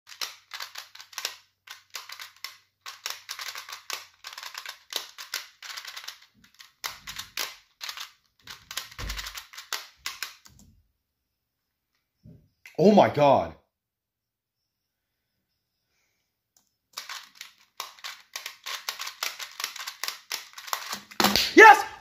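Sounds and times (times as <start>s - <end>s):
puzzle dials clicking: 17.0s - 21.2s.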